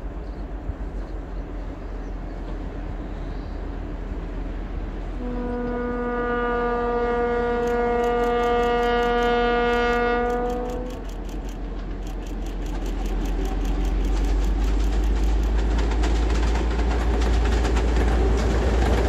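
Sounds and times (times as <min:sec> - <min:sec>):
train rumbling: 0:00.0 - 0:19.0
locomotive horn blast: 0:05.1 - 0:11.2.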